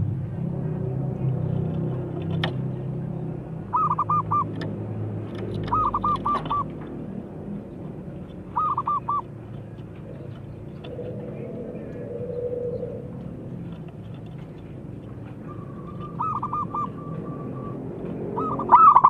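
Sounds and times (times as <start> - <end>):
low background hum: 0.0 - 19.0
dove cooing: 3.7 - 4.6, 5.4 - 6.8, 8.5 - 9.4, 10.0 - 19.0.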